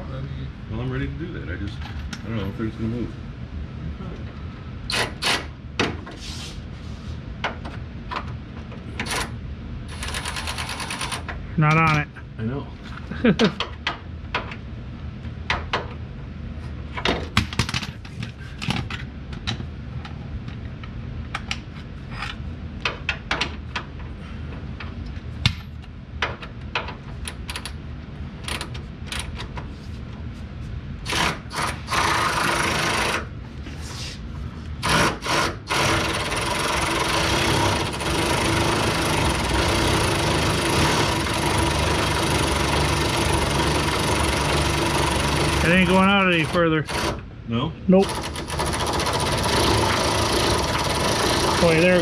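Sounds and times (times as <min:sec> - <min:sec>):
machine humming: 0:34.8 - 0:52.0.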